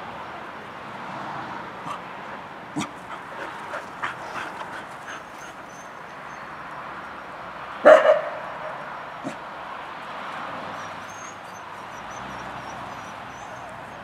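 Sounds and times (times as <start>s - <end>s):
dog yipping: 5.1s - 6.5s, 10.8s - 14.0s.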